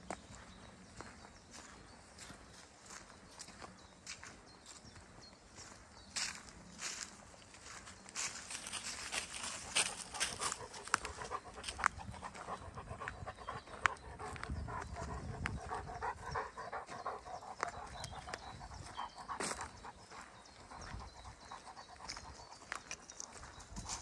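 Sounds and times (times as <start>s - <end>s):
footsteps crunching on dry leaves: 0.2s - 12.5s
dog panting: 9.1s - 24.0s.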